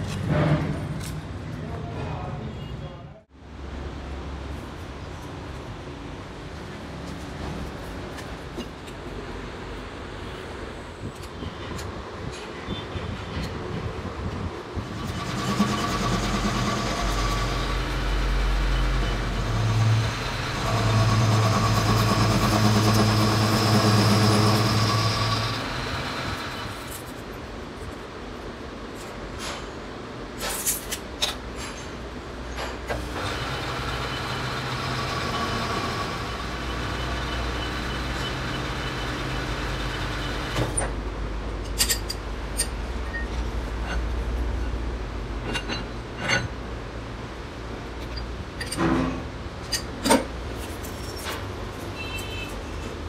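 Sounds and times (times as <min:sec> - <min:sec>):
low workshop hum: 0:00.0 - 0:53.0
lathe machine hum and whine: 0:14.8 - 0:26.9, 0:33.0 - 0:40.7
metal taps and clanks: 0:41.6 - 0:44.1, 0:45.4 - 0:46.6.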